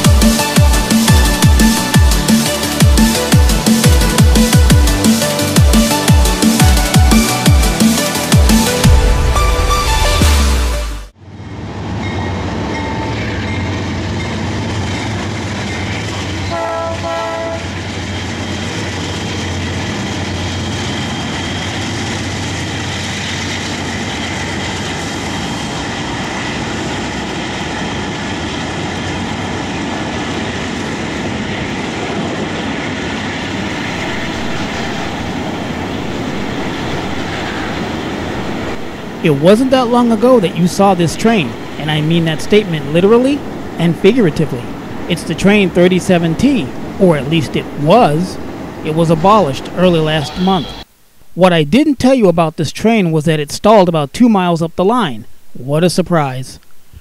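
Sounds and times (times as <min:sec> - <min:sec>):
diesel locomotive engine rumble: 0:00.0 - 0:51.7
train wheels rolling on rails: 0:11.3 - 0:50.9
train horn blast: 0:16.5 - 0:17.8.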